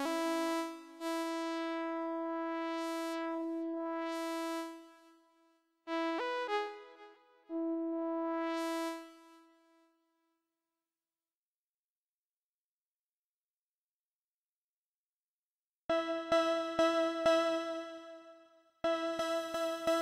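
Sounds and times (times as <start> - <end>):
soft synth keyboard: 0.0 - 5.0, 15.9 - 20.0.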